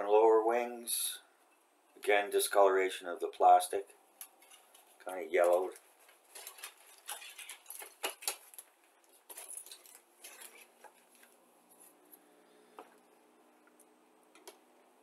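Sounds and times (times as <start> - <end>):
plastic clicks and clatter: 4.2 - 11.3
plastic bag crinkling: 4.2 - 12.0.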